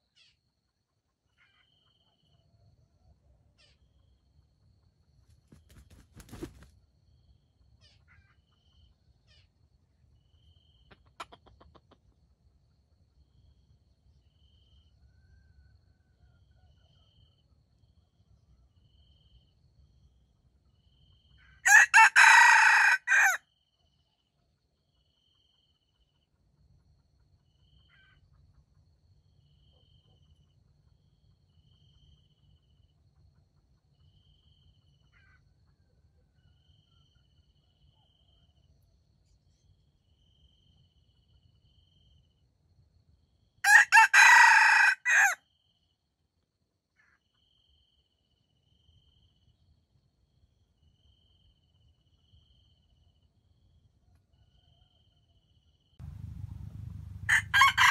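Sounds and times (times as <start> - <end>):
rooster crowing: 21.6 - 23.4, 43.6 - 45.4, 56.0 - 57.9.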